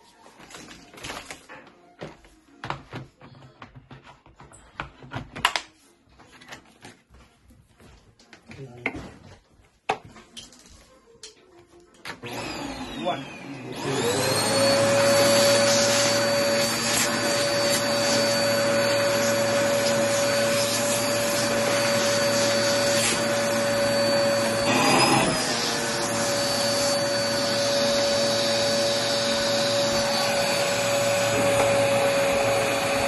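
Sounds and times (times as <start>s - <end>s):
vacuum cleaner motor whine: 12.1s - 33.0s.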